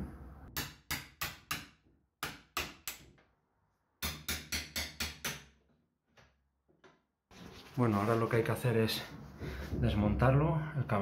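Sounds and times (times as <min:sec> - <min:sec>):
hammer striking chisel: 0:00.5 - 0:03.2, 0:04.0 - 0:05.6.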